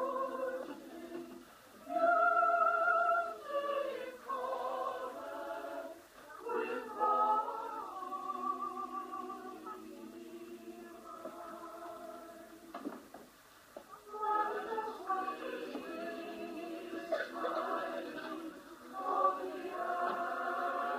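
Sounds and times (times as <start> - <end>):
choir singing held notes: 0.0 - 12.7, 13.9 - 20.9
choir breaths: 14.0 - 20.9.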